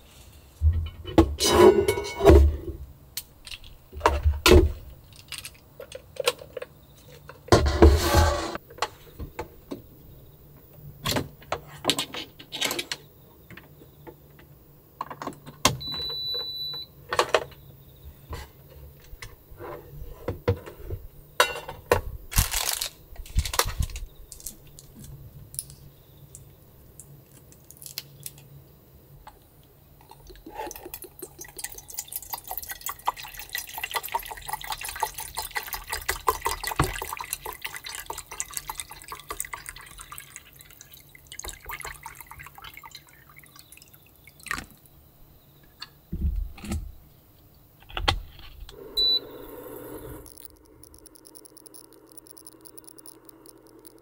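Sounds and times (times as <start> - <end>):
water pouring into metal pot: 30.2 - 44.6
electronic beep: 49.0 - 49.5, 50.2 - 54.0.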